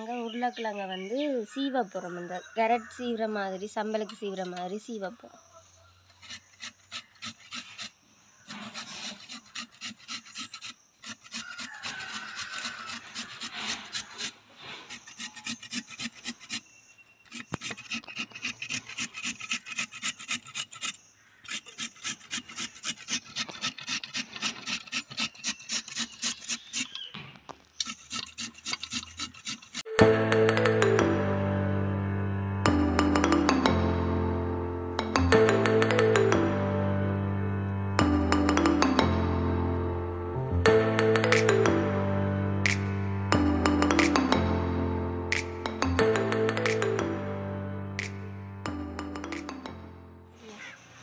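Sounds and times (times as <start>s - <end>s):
potato grating on metal grater: 6.1s - 27.1s, 27.8s - 29.9s
music: 29.9s - 50.4s.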